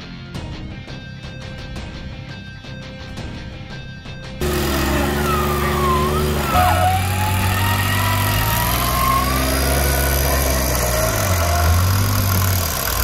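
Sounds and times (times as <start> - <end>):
engine running at low revs: 4.4 - 13.0.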